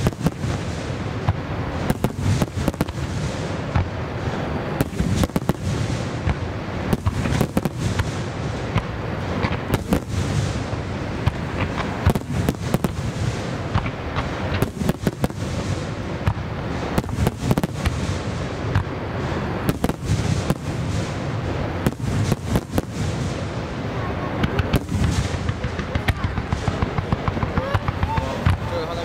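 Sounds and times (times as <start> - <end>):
firework rumble and crackle: 0.0 - 29.0.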